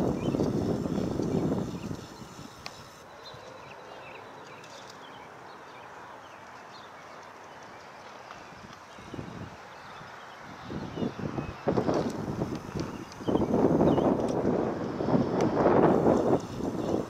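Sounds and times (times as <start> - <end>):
wind buffeting microphone: 0.0 - 3.0, 8.4 - 17.0
steady outdoor hiss: 0.0 - 17.0.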